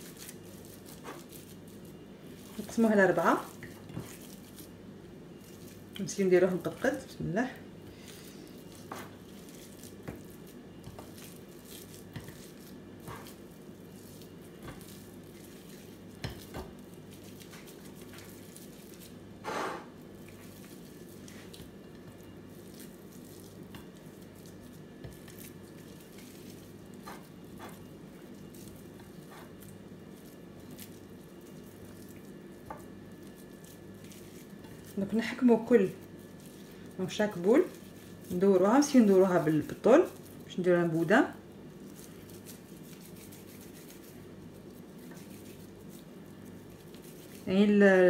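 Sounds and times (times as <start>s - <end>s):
soft squishing of minced meat: 0.0s - 48.0s
steady low hum: 0.0s - 48.0s
scrape on plate: 19.4s - 19.9s.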